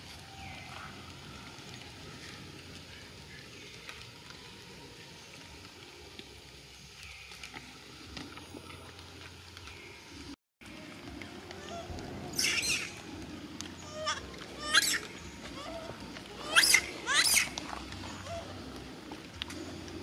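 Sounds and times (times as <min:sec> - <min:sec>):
crackly hiss: 0:00.0 - 0:20.0
short high arching calls: 0:11.6 - 0:13.0, 0:13.8 - 0:18.5
light ticks: 0:17.5 - 0:20.0.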